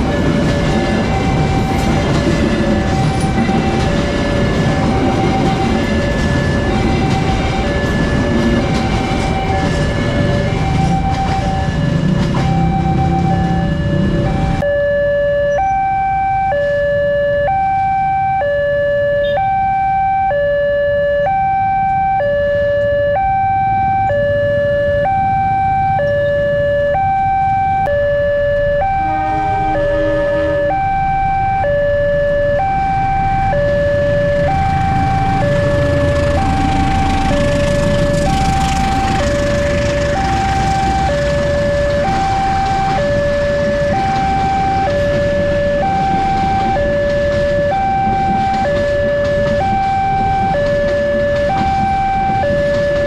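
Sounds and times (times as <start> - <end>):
passenger train passing: 0.0 - 14.6, 22.4 - 53.0
level-crossing alarm: 0.0 - 53.0
motorbikes idling: 34.2 - 53.0.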